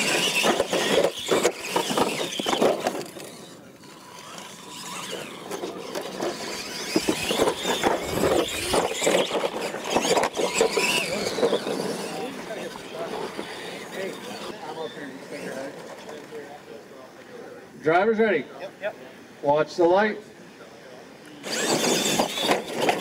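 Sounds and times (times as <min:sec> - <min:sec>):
wheels knocking over dirt: 0:00.0 - 0:03.4, 0:04.2 - 0:12.3, 0:21.5 - 0:23.0
rc truck motor whine: 0:00.0 - 0:16.8, 0:21.2 - 0:23.0.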